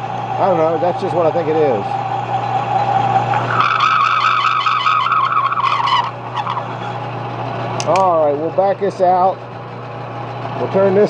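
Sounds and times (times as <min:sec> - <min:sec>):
cutting tool squealing: 0:00.0 - 0:07.1
lathe motor humming: 0:00.0 - 0:11.0.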